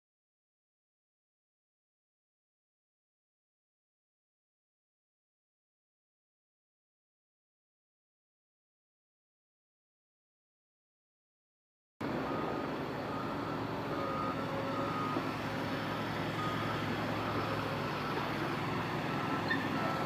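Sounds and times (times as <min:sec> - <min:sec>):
truck engine running: 0:12.0 - 0:20.0
truck reversing alarm beeping: 0:12.0 - 0:20.0.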